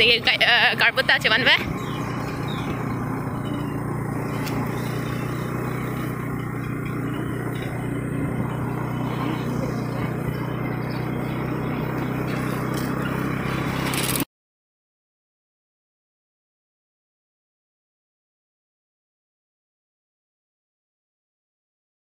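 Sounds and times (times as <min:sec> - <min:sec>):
motorcycle engine hum: 0:00.0 - 0:14.3.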